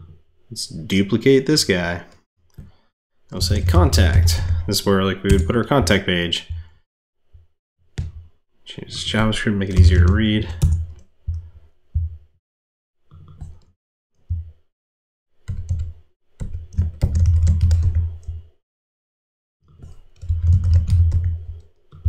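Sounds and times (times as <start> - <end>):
computer keyboard typing: 15.5 - 18.4, 20.2 - 22.0.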